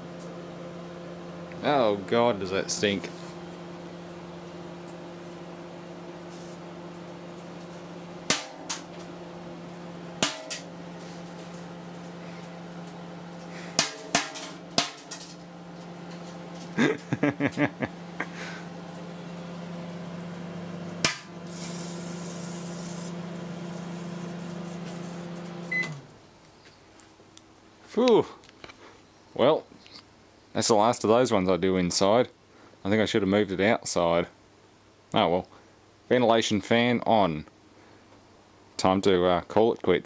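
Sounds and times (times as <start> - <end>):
microwave oven humming: 0.0 - 26.4.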